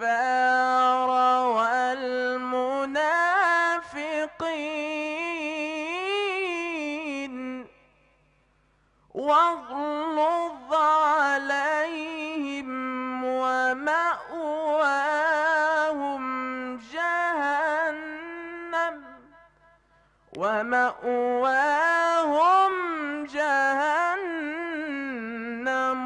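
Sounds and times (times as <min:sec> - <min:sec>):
man reciting melodically: 0:00.0 - 0:26.0.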